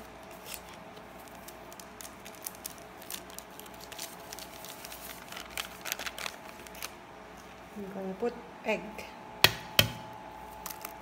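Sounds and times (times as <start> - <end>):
plastic sachet crinkling: 0.0 - 7.6, 10.5 - 11.0.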